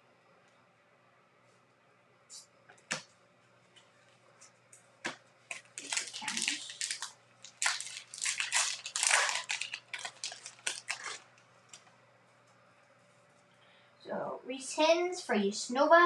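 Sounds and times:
foil wrapper tearing and crinkling: 5.5 - 11.3.

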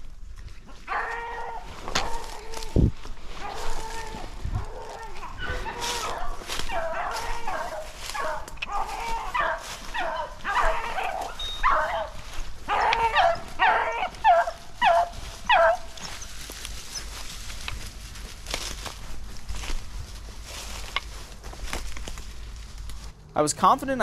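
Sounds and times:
hounds baying and yelping: 0.4 - 17.8.

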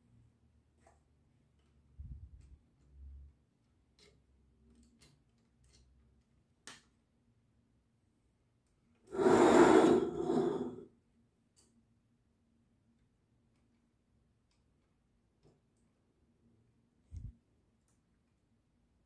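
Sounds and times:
plastic model scraping on table: 9.1 - 10.8.

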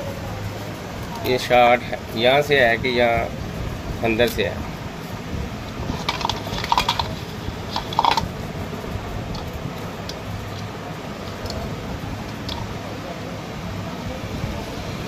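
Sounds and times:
steady low hum: 0.0 - 15.0
wire fittings clicking: 5.6 - 12.8.

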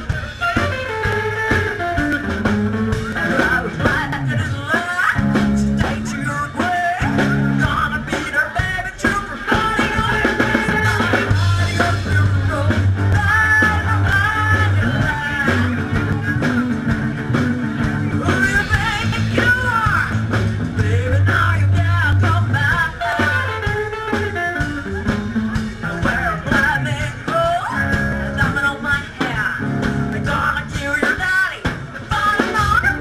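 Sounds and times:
walking upright bass: 0.0 - 31.1
steady drum beat: 0.0 - 33.0
woman singing: 1.9 - 17.0, 25.6 - 33.0.

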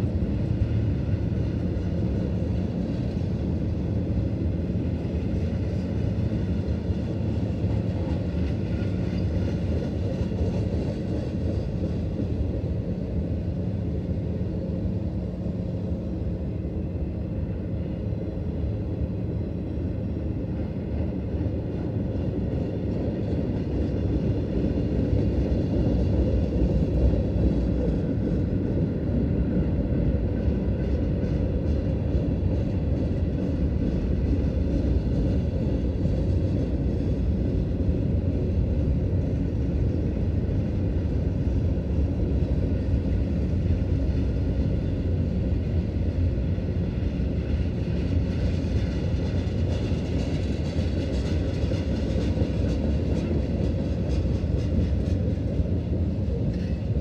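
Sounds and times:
freight train rolling on rails: 0.0 - 57.0.

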